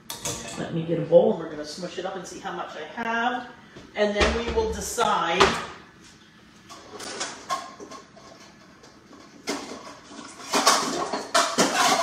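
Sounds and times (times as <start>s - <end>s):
dishes clattering: 6.7s - 12.0s.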